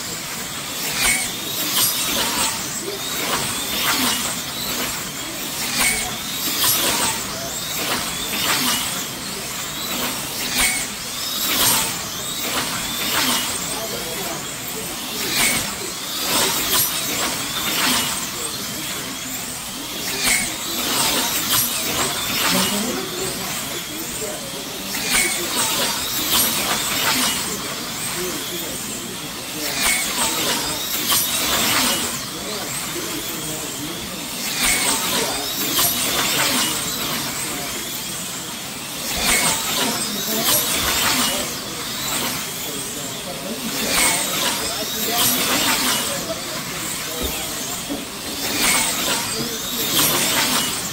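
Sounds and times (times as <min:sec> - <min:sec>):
slot car electric motor whine: 0:00.0 - 0:50.9.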